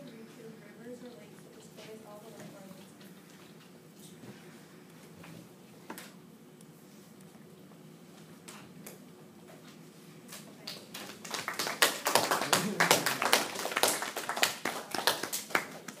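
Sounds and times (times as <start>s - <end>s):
people clapping: 10.4s - 16.0s.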